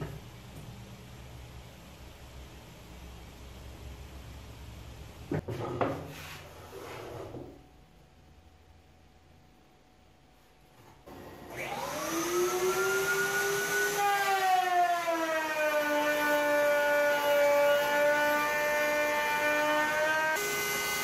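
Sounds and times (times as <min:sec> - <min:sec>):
dust extraction vacuum: 0:11.1 - 0:14.4, 0:19.3 - 0:21.0
router motor whine: 0:11.1 - 0:21.0
router bit cutting wood: 0:11.4 - 0:21.0.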